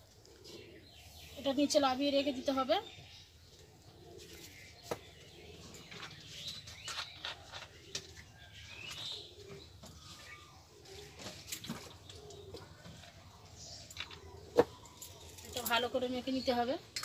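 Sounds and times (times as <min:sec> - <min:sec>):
dove cooing: 0:00.0 - 0:01.4, 0:03.6 - 0:06.2, 0:06.8 - 0:15.8
birds chirping: 0:00.0 - 0:17.0.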